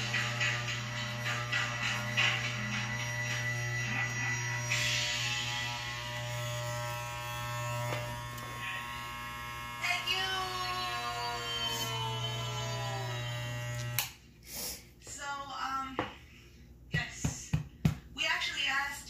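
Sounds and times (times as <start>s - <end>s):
electric pet clippers buzzing: 0.0s - 14.2s.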